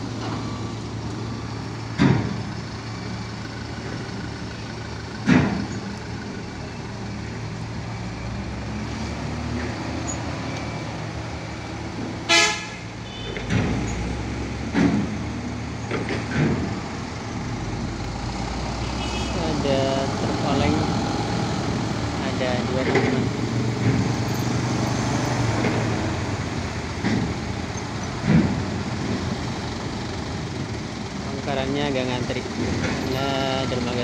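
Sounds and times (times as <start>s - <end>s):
vehicles driving past: 0.0s - 34.0s
loud thumps: 1.9s - 2.6s
vehicle horn toot: 12.3s - 13.5s, 18.9s - 19.4s.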